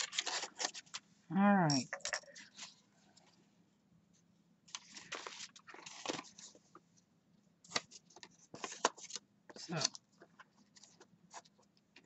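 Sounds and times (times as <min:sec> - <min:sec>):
paper rustling and crinkling: 0:00.0 - 0:01.0, 0:04.7 - 0:06.8, 0:07.6 - 0:12.0.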